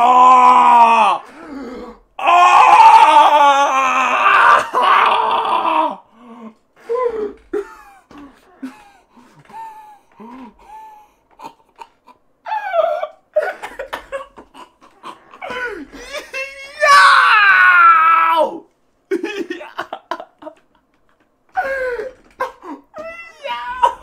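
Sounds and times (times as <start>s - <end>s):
man laughing hard: 13.4s - 17.0s, 19.1s - 24.0s.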